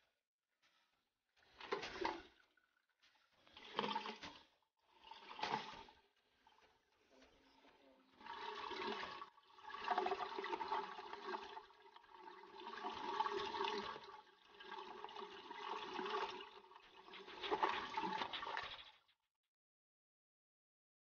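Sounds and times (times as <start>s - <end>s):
water rushing through cistern: 1.4s - 19.1s.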